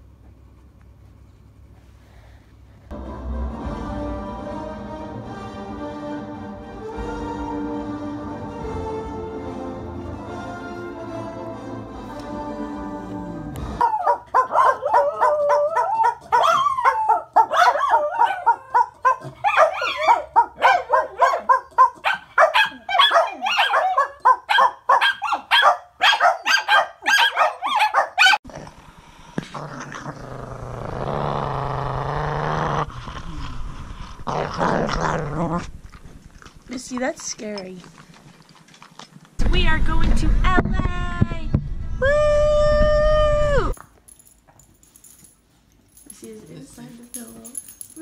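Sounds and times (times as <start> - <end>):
dog howling: 13.8 - 21.6
dogs barking and yipping: 13.8 - 28.4
dog growling: 28.4 - 36.7.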